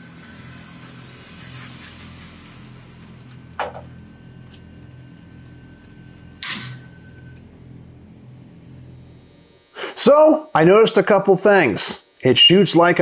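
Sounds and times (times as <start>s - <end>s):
target carrier hiss and hum: 0.0s - 13.0s.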